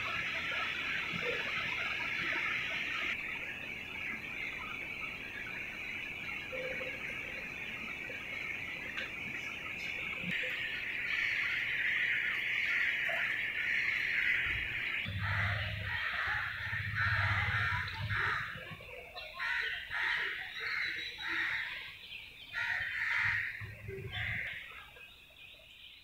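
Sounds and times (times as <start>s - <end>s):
steady high hiss: 0.0s - 19.2s
harsh bird calls: 0.0s - 26.0s.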